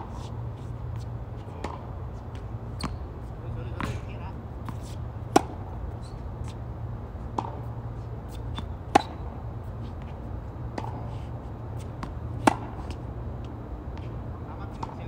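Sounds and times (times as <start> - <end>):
tennis ball bouncing: 0.0 - 6.6, 7.2 - 11.1, 11.8 - 15.0
steady low hum: 0.0 - 15.0
racket striking tennis ball: 1.6 - 3.0, 3.7 - 6.6, 7.3 - 10.1, 10.7 - 11.1, 11.8 - 13.0.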